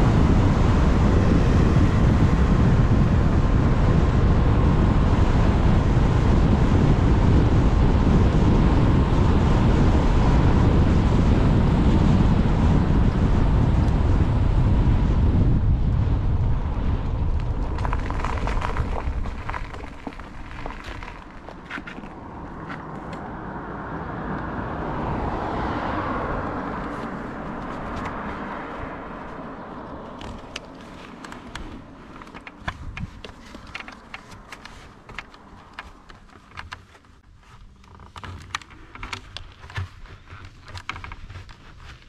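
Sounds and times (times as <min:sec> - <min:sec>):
car passing: 0:16.1 - 0:36.1.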